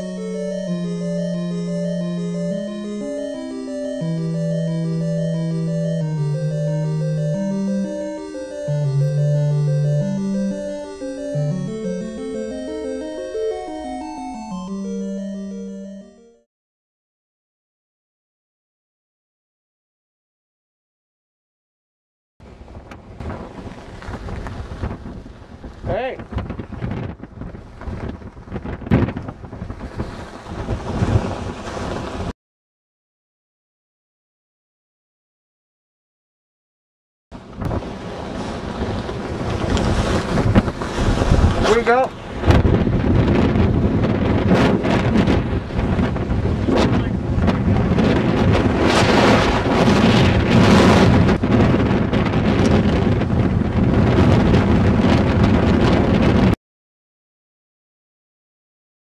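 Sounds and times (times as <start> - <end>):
wind buffeting microphone: 22.4 - 32.3, 37.4 - 56.6.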